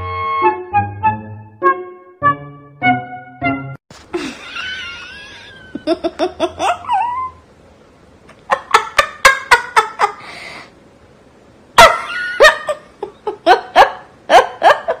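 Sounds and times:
person laughing: 4.1s - 7.4s, 8.3s - 10.3s, 11.8s - 15.0s
breathy in-breath: 10.2s - 10.8s.

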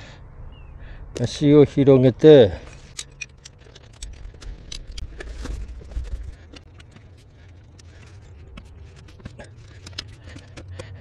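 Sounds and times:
folding table clicking and rattling: 2.9s - 11.0s.

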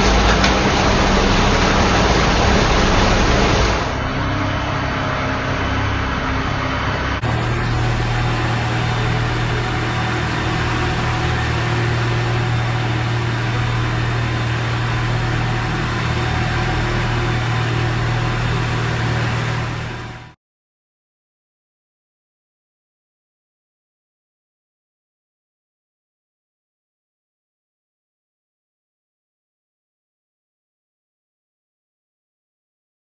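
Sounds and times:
machinery motor humming: 0.0s - 20.4s.

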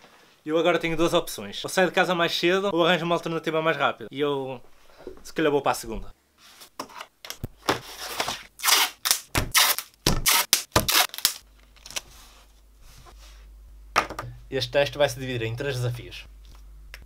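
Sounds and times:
faint low hum: 11.4s - 17.0s.

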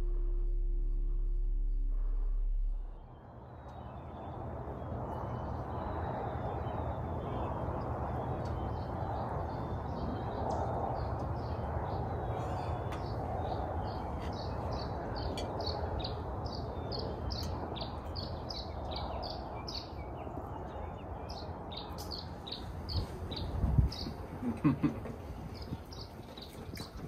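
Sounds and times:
low rumble: 0.0s - 19.5s
songbird chirping: 2.8s - 27.0s.

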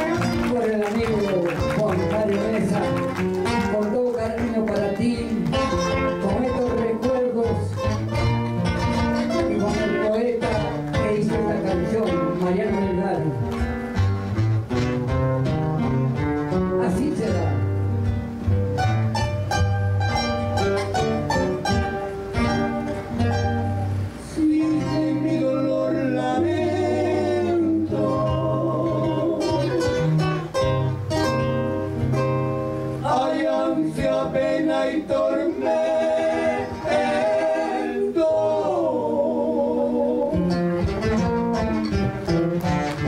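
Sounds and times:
acoustic guitars playing: 0.0s - 43.0s
man singing: 3.7s - 7.9s, 9.3s - 13.3s, 24.2s - 30.0s, 33.0s - 40.6s.

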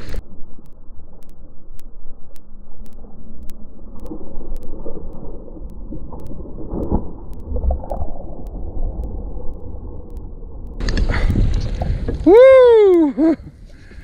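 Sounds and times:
wind buffeting microphone: 10.7s - 12.8s.

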